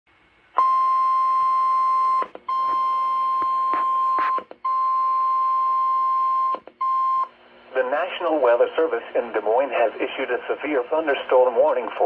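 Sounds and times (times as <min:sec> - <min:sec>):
emergency alert tone beeps: 0:00.6 - 0:07.3.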